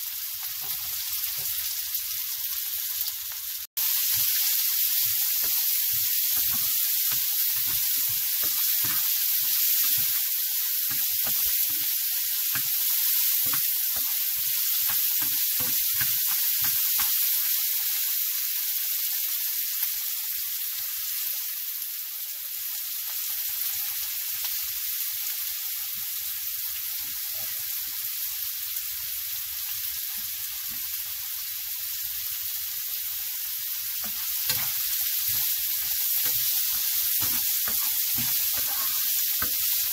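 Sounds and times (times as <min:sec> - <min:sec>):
onions sizzling in a pan: 0:00.0 - 0:39.9
spatula stirring and knocking: 0:05.0 - 0:11.9, 0:34.0 - 0:39.9.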